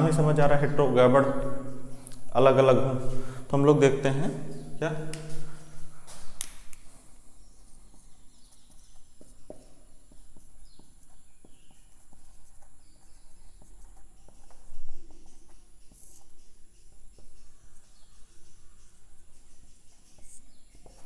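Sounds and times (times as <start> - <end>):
marker squeaking on whiteboard: 7.3 - 21.0
marker tapping: 7.6 - 17.9.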